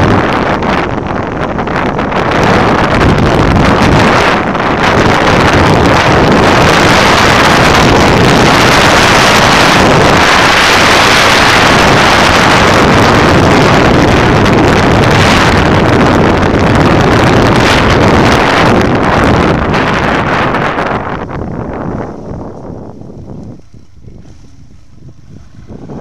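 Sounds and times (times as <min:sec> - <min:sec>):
motorcycle engine running: 0:00.0 - 0:26.0
wind noise on microphone: 0:00.0 - 0:26.0.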